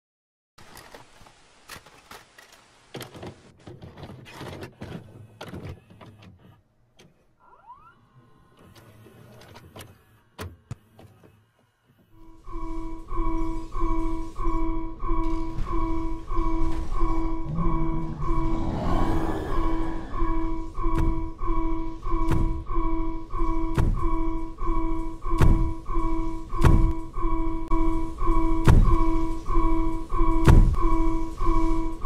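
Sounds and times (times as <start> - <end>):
low pulsing tone: 12.2 - 32.0
low rumble: 12.3 - 31.2.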